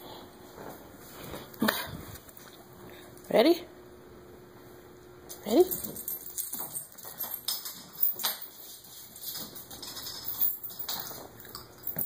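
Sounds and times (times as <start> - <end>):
dog claws clicking on hard floor: 5.8 - 12.0.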